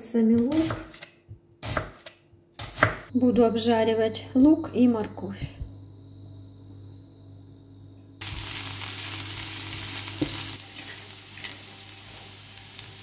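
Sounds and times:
low hum: 3.1s - 13.0s
onion sizzling in hot oil: 8.2s - 13.0s.

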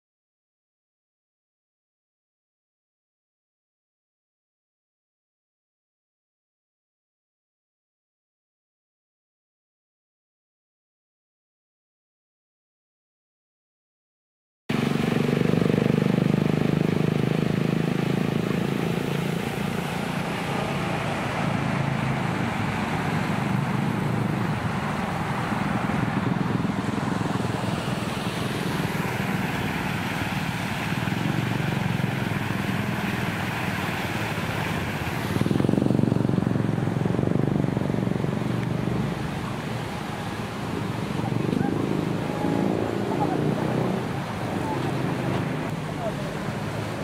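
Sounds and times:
street traffic: 14.7s - 47.0s
vehicle passing close: 14.7s - 47.0s.

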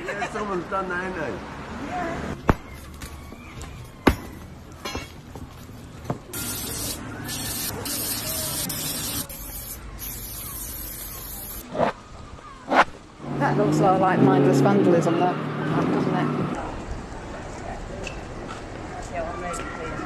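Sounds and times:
spray paint can hissing: 6.3s - 11.6s.

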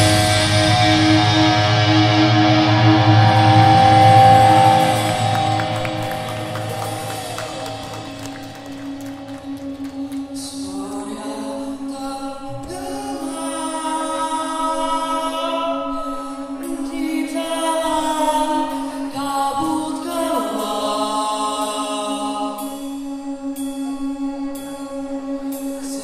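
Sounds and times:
sustained drone note: 0.0s - 17.0s.

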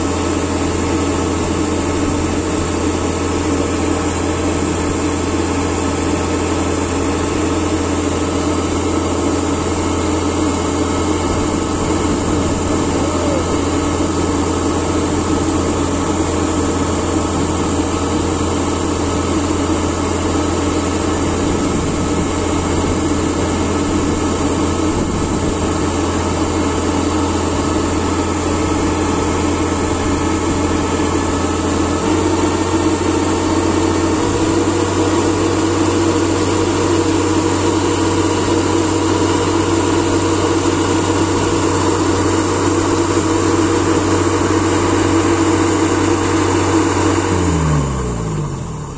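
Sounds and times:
auger discharging grain: 0.0s - 48.9s
combine harvester engine droning: 0.0s - 48.9s.

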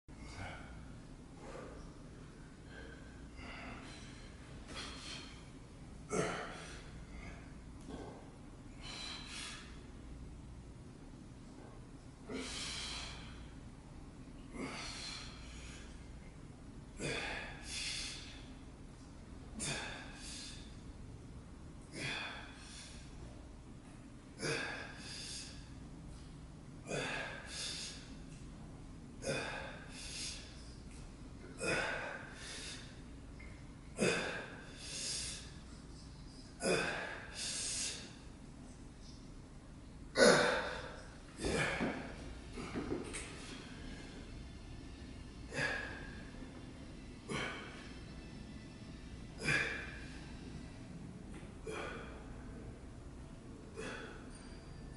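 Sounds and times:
man breathing hard: 0.1s - 8.1s, 8.7s - 9.9s, 12.2s - 13.6s, 14.4s - 16.1s, 17.0s - 18.6s, 19.6s - 20.8s, 21.9s - 23.2s, 24.4s - 25.8s, 26.9s - 28.3s, 29.2s - 30.8s, 31.6s - 35.6s, 36.6s - 38.3s, 45.3s - 46.6s, 49.3s - 52.4s
man breathing forcefully: 2.6s - 7.4s, 8.7s - 9.8s, 12.3s - 13.6s, 29.3s - 30.6s, 31.6s - 33.0s.

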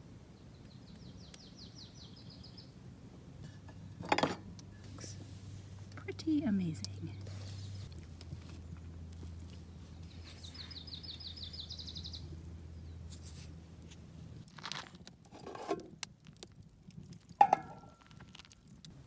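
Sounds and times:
bird chirping: 0.4s - 2.7s, 9.6s - 13.1s.

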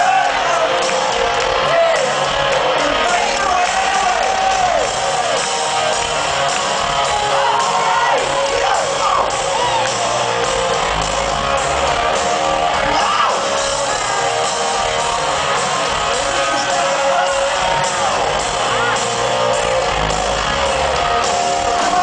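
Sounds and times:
drums: 0.0s - 22.0s
electric guitars: 0.0s - 22.0s.

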